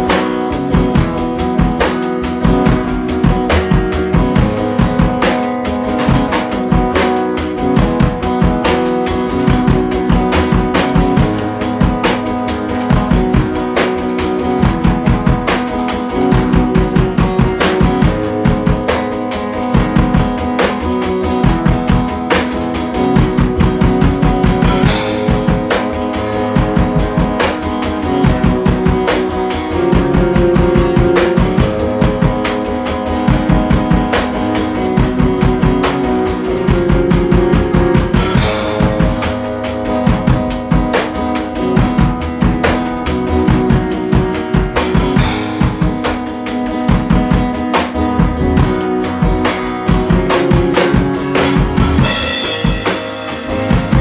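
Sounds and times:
drum kit beat: 0:00.0 - 0:54.0
guitar riff: 0:00.0 - 0:54.0.

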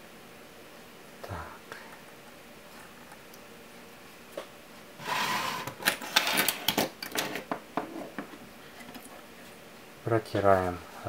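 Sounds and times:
hands scraping objects on desk: 0:05.0 - 0:06.6.

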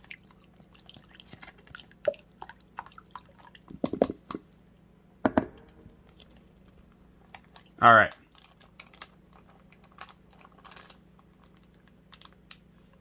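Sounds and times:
dressing dripping and splatting: 0:00.0 - 0:04.6.

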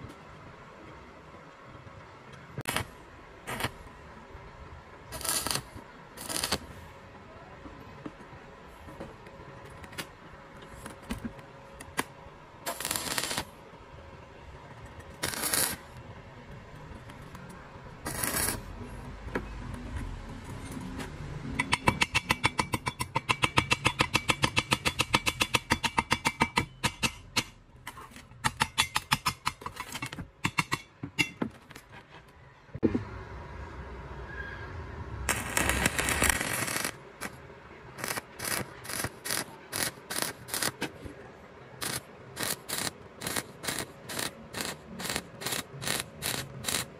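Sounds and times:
welding arc hissing: 0:02.6 - 0:03.8, 0:05.1 - 0:06.7, 0:12.7 - 0:13.5, 0:15.2 - 0:15.8, 0:18.0 - 0:18.7, 0:35.3 - 0:37.4, 0:38.0 - 0:40.8, 0:41.8 - 0:46.9.

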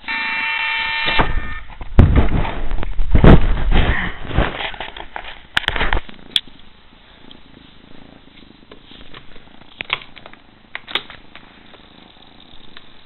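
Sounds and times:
cat purring: 0:07.1 - 0:13.0.

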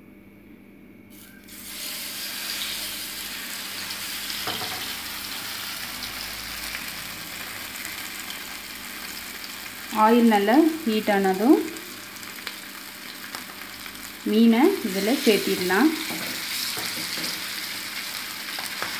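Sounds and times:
fish sizzling in hot oil: 0:01.1 - 0:18.9.

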